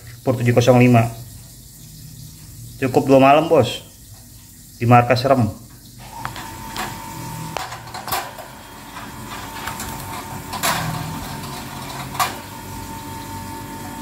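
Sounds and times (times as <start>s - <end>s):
steady hum: 6.0s - 14.0s.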